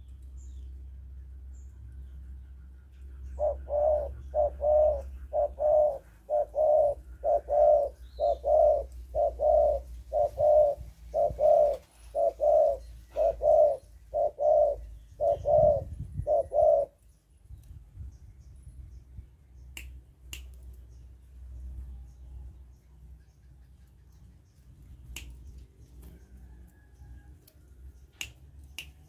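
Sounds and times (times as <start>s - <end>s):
dove cooing: 3.2s - 17.0s.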